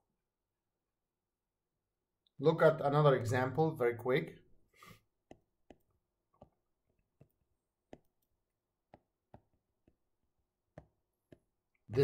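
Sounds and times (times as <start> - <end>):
stylus tapping on tablet screen: 5.2 - 11.9.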